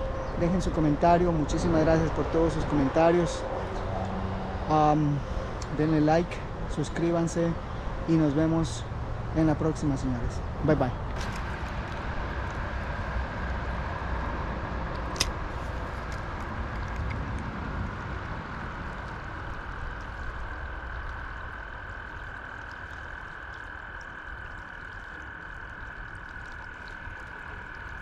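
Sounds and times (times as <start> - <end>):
river water gurgling over rocks: 11.0 - 28.0.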